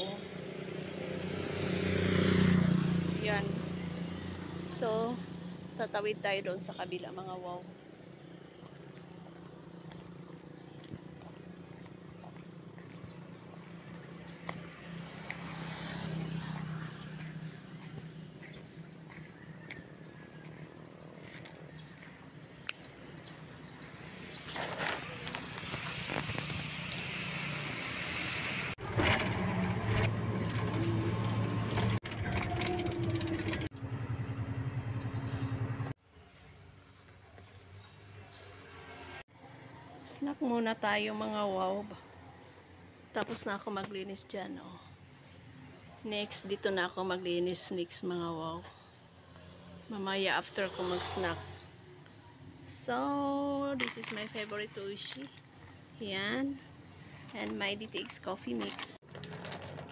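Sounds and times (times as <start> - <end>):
road noise: 0.0 - 59.9
footsteps on gravel: 8.8 - 23.3
bus engine droning: 23.0 - 39.2.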